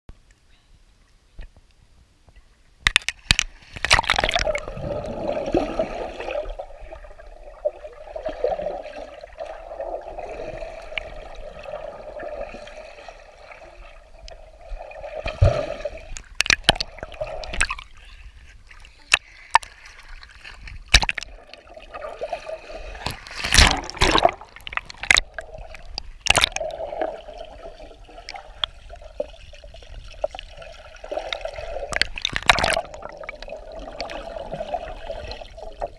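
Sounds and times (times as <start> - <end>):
underwater gurgling and sloshing: 3.0 - 35.9
water splashes and knocks: 15.2 - 17.9, 20.4 - 21.6, 23.0 - 26.7, 31.3 - 34.8.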